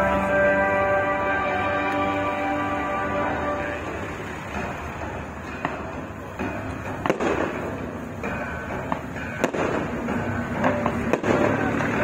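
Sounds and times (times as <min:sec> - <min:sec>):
fireworks popping and banging: 0:03.8 - 0:12.0.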